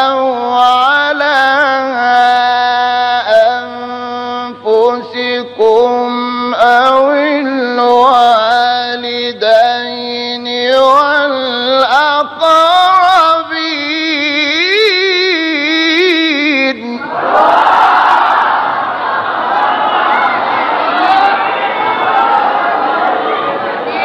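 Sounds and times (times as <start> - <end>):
person reciting melodically: 0.0 - 17.2.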